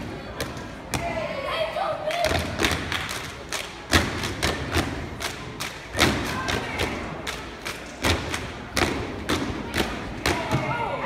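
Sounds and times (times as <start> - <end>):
rhythmic stomps and claps: 2.1 - 10.7.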